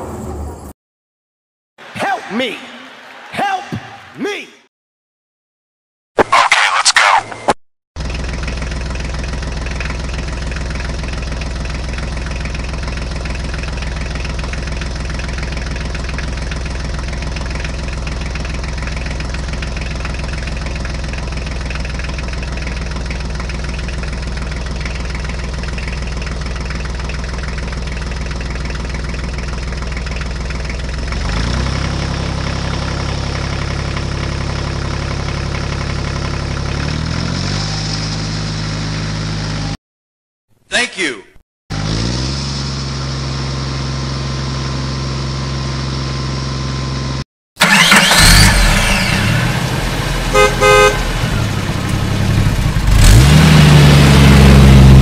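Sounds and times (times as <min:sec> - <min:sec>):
tractor engine idling: 0:08.0 - 0:37.2, 0:43.2 - 0:55.0.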